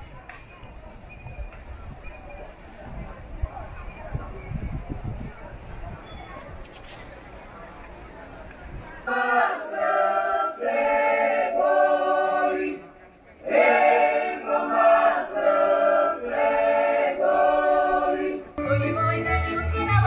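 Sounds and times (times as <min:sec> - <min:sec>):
large choir singing: 0:09.0 - 0:12.8, 0:13.4 - 0:20.0.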